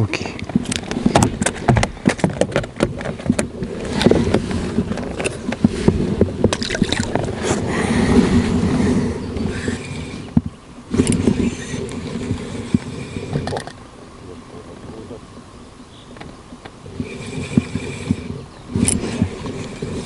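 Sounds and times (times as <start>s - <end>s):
clicks and knocks in boat: 0.0s - 7.4s.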